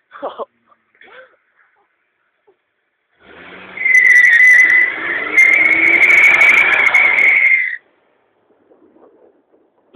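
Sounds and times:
car tyres screeching: 0:03.2 - 0:07.8.

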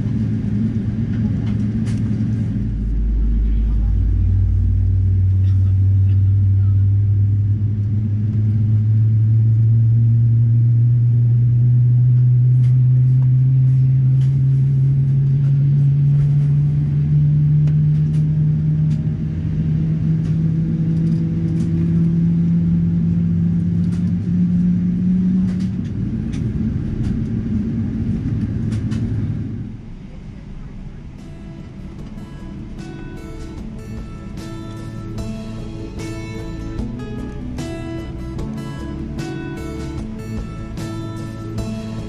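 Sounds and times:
jet engines at takeoff: 0:00.0 - 0:42.0.

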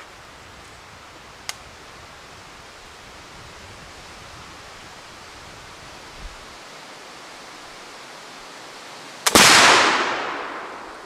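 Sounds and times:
outdoor background hiss: 0:00.0 - 0:11.0
sharp snap: 0:01.4 - 0:01.6
rifle shot ringing out: 0:09.2 - 0:11.0.

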